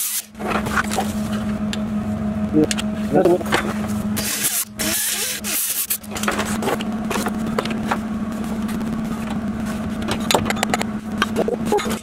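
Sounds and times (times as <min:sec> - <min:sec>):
steady low hum: 0:00.0 - 0:12.0
grinder grinding metal: 0:03.5 - 0:07.8
mig welder crackling: 0:04.1 - 0:12.0.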